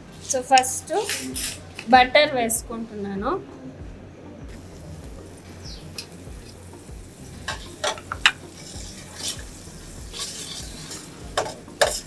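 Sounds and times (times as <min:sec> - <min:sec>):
metal spatula scraping a pan: 0:00.9 - 0:01.7, 0:07.5 - 0:12.0
butter sizzling in a pan: 0:04.6 - 0:12.0.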